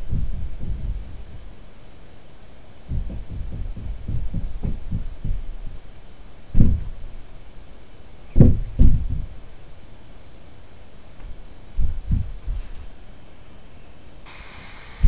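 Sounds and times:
dull low thumps: 0.0s - 1.5s, 2.9s - 5.8s, 6.5s - 7.1s, 8.4s - 9.4s, 11.8s - 12.6s.

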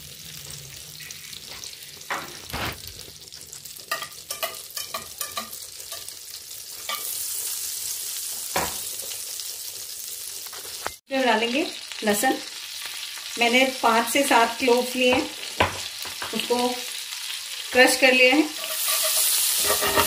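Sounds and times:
butter sizzling in frying pan: 0.0s - 20.0s
whisk tapping and scraping: 18.6s - 20.0s.

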